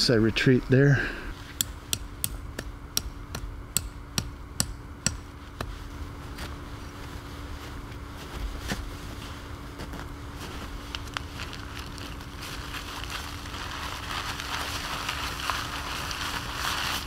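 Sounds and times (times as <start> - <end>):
tent stake being hammered: 1.6 - 5.7.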